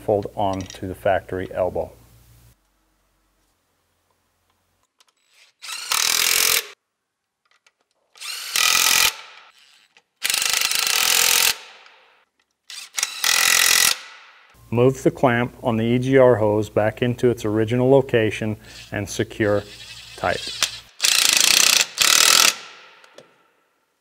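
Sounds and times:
electric ratchet running: 0:05.2 - 0:06.8, 0:08.2 - 0:11.7, 0:12.7 - 0:14.1, 0:19.6 - 0:22.7.

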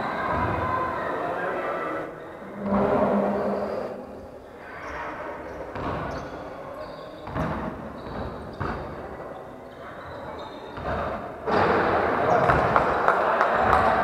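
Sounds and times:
murmur of voices: 0:00.0 - 0:14.0
basketball bouncing on wooden floor: 0:07.2 - 0:08.8.

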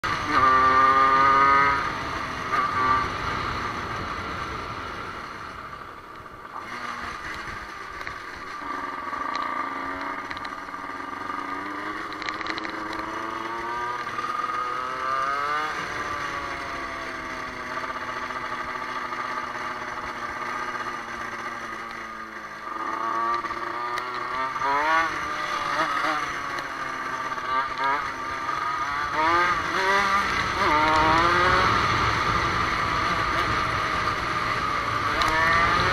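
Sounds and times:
dirt bike engine revving: 0:00.0 - 0:05.1, 0:06.5 - 0:35.9.

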